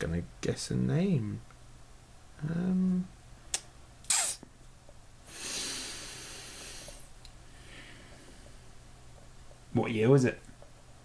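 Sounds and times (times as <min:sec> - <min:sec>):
person humming: 0:02.4 - 0:03.1
mouth click: 0:03.5 - 0:04.5
sniff-like puff of air: 0:05.3 - 0:07.1
long breathy exhale: 0:05.3 - 0:08.2.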